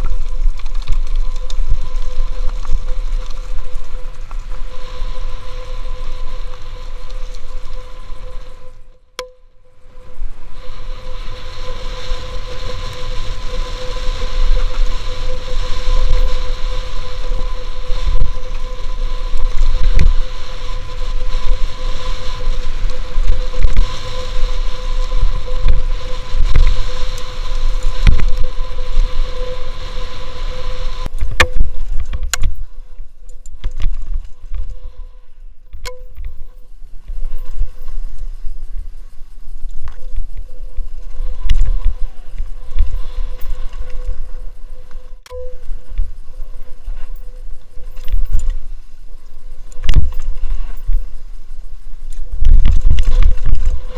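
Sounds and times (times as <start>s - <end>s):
bike rattling on dirt trail: 0.0s - 8.9s, 9.8s - 35.1s, 35.8s - 53.9s
wind buffeting camera: 0.0s - 9.0s, 9.8s - 53.9s
steady high tone: 45.2s - 46.2s.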